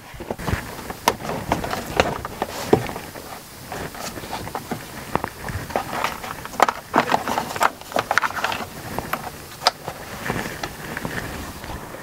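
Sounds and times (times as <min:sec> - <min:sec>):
plastic panel clicking and knocking: 0:00.0 - 0:03.2.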